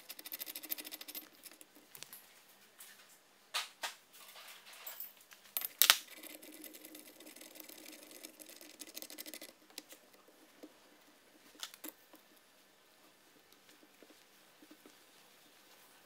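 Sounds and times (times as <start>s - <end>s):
rapid fine ticking: 6.1s - 12.4s.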